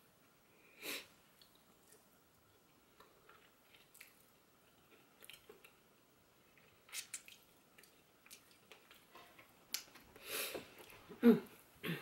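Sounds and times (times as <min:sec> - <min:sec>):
wet chewing and sucking: 0:06.5 - 0:09.1.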